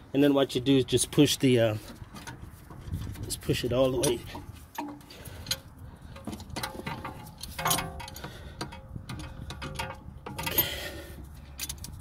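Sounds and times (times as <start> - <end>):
metallic clicks and knocks: 1.9 - 10.8, 11.5 - 12.0.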